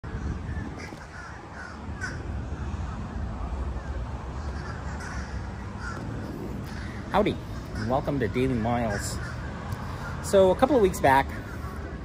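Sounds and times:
low outdoor rumble: 0.0s - 12.0s
crow cawing: 0.8s - 2.6s, 3.8s - 10.3s, 11.3s - 11.9s.

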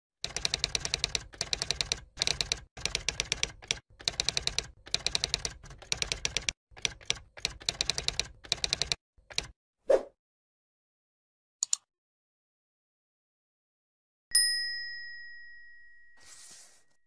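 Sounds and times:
typewriter keys clacking: 0.2s - 9.5s.

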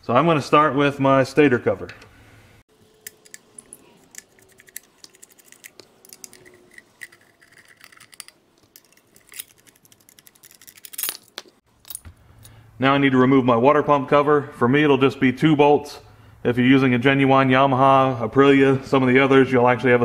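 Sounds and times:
hex key clicking and scraping: 3.0s - 12.1s.

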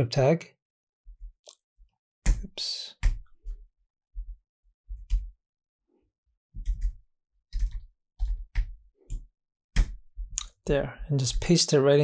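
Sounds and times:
keyboard and mouse clicks: 6.6s - 9.2s.

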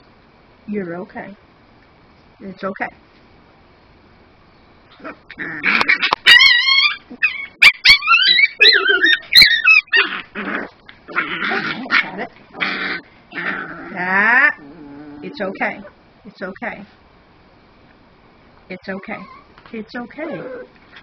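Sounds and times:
puppy snarling and growling: 4.9s - 16.0s, 20.1s - 21.0s
puppy crying whines: 5.8s - 10.3s, 19.0s - 19.5s.

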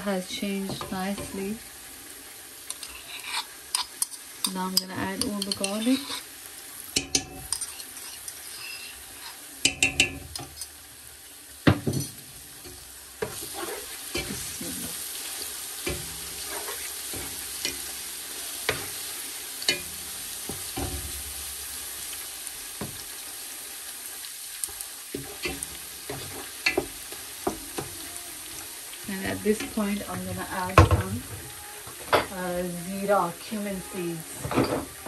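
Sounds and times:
onion and garlic sizzling in pan: 0.0s - 35.0s
spoon stirring and knocking pan: 0.5s - 1.6s, 2.7s - 6.3s, 6.9s - 10.8s, 11.6s - 14.6s, 15.4s - 21.4s, 22.8s - 23.1s, 24.6s - 28.2s, 29.3s - 32.4s.

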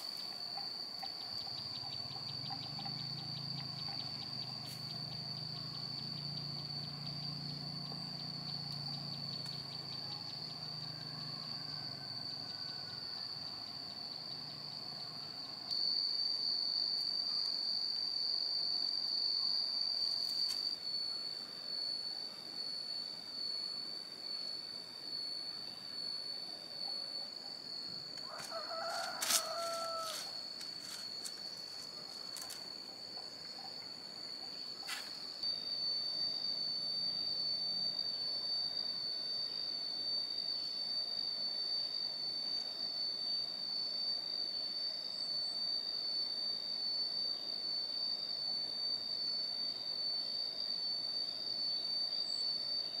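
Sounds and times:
high-pitched insect drone: 0.0s - 53.0s.

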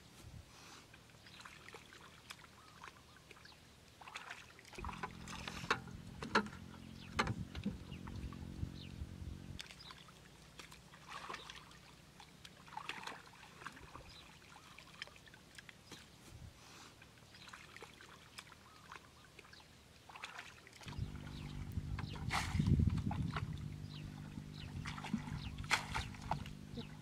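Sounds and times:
muddy water splashing: 1.0s - 27.0s
low steady hum: 4.7s - 14.6s, 20.8s - 27.0s.

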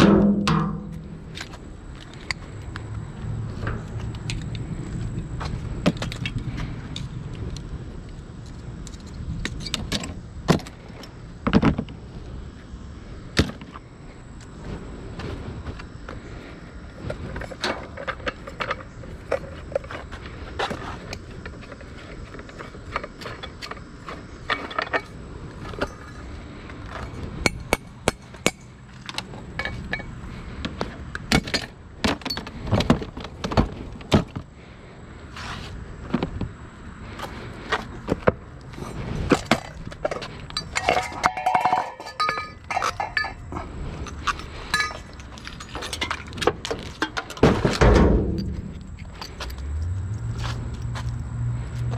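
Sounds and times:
hard objects clattering together: 39.3s - 49.6s.

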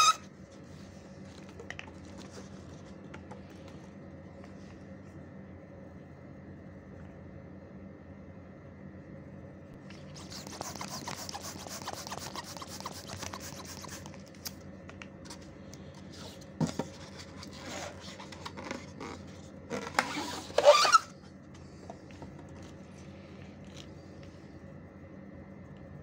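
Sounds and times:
squeaky balloon rub: 0.0s - 0.3s, 10.1s - 14.1s, 17.2s - 21.2s
rubber balloons rubbing: 10.0s - 14.2s, 16.1s - 21.2s.

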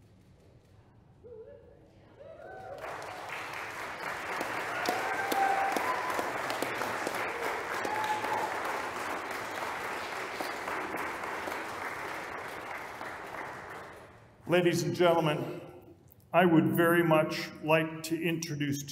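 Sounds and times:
guests applauding: 2.4s - 14.4s.

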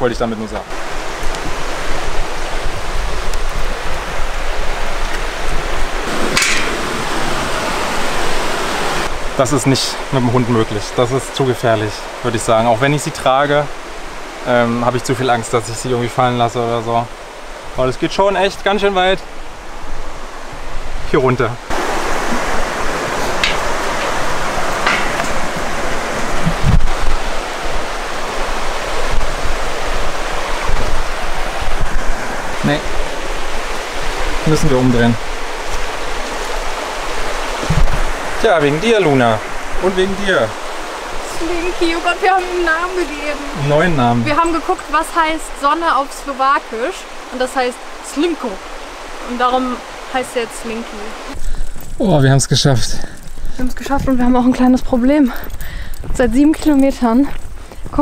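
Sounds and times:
stream rushing: 0.0s - 58.0s
wind rumbling on microphone: 0.6s - 9.4s, 19.3s - 52.0s.

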